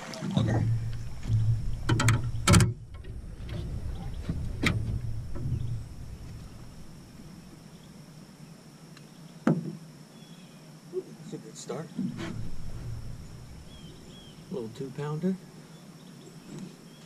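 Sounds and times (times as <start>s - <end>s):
water splashing: 0.0s - 8.3s, 11.9s - 15.3s
low rumble: 0.4s - 8.3s, 12.1s - 15.6s
knocks on metal boat: 9.5s - 9.8s.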